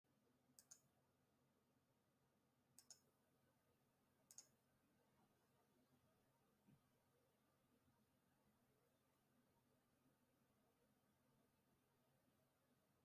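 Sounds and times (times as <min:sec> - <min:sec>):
computer mouse clicks: 0:00.6 - 0:00.9, 0:02.8 - 0:03.1, 0:04.3 - 0:04.6.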